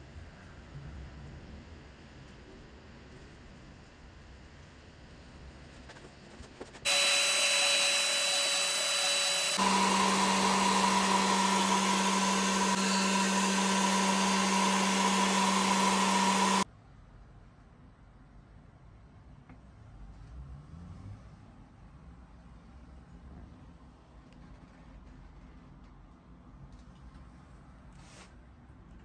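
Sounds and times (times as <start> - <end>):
electric motor running: 6.9 - 16.6.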